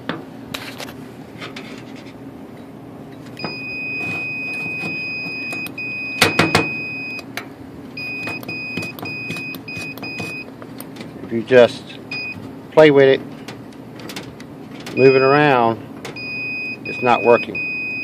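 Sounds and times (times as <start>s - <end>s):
multimeter continuity beeps: 3.4s - 7.3s, 8.0s - 10.5s, 12.1s - 12.4s, 15.0s - 18.0s.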